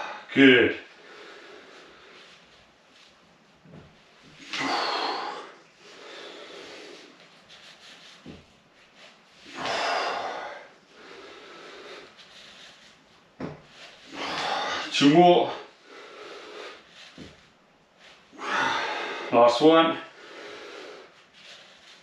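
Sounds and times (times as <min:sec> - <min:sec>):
man exhaling forcefully: 0:04.4 - 0:05.6, 0:09.5 - 0:10.7, 0:14.1 - 0:14.9, 0:18.4 - 0:19.3
man breathing in: 0:04.4 - 0:07.2, 0:18.3 - 0:19.3, 0:20.1 - 0:21.5.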